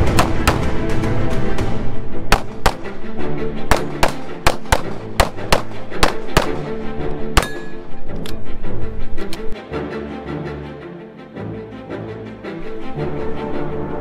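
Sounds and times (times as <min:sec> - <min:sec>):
rapid pistol fire: 0:00.0 - 0:00.8, 0:02.3 - 0:03.0, 0:03.7 - 0:06.7
background music: 0:00.0 - 0:14.0.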